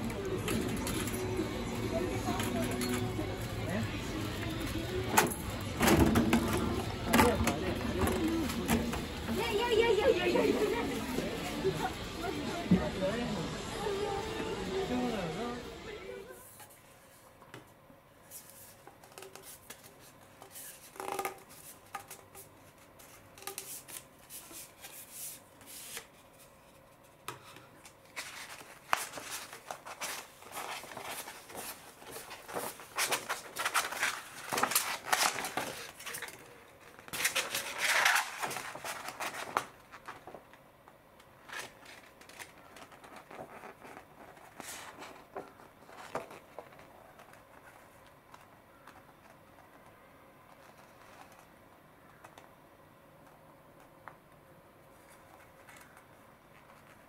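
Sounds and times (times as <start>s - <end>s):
paper rustling and crackling: 18.2s - 40.6s, 41.2s - 52.4s, 54.9s - 57.0s.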